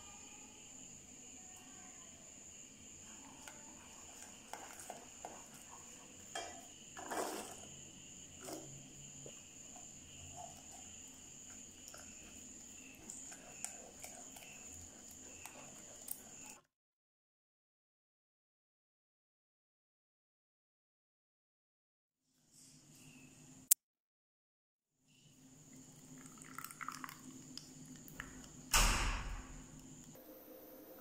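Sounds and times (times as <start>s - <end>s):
spatula scraping a saucepan: 3.1s - 16.6s.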